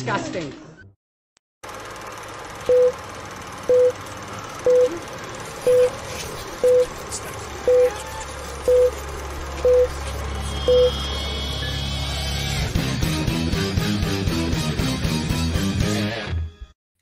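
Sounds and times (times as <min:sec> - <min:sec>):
short mid-pitched beeps: 0:03.7 - 0:04.0, 0:04.7 - 0:05.0, 0:05.7 - 0:06.0, 0:06.6 - 0:06.9, 0:07.7 - 0:08.0, 0:08.7 - 0:09.0, 0:09.6 - 0:11.9.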